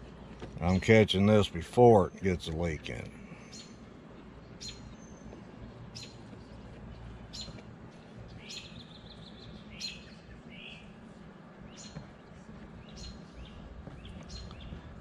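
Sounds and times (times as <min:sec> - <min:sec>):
songbird chirping and trilling: 0:03.3 - 0:14.9.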